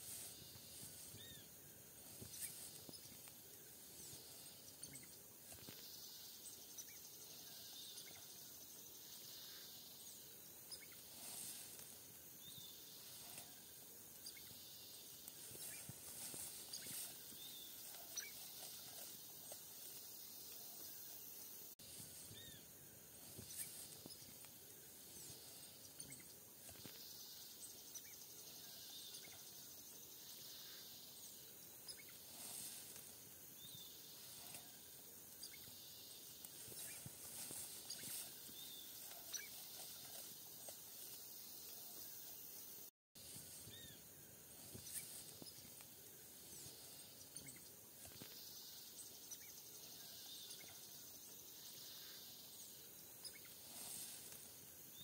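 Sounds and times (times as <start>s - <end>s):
insects hissing: 0.0s - 55.0s
bird chirps: 14.2s - 19.6s.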